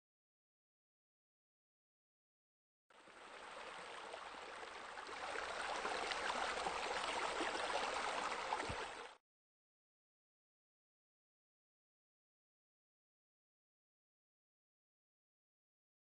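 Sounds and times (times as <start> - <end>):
running splashing water: 3.0 - 9.2.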